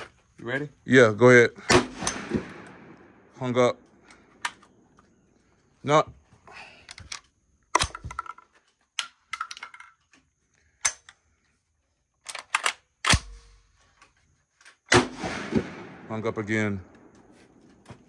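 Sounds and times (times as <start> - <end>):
shotgun action metallic clicks: 12.2 - 13.5.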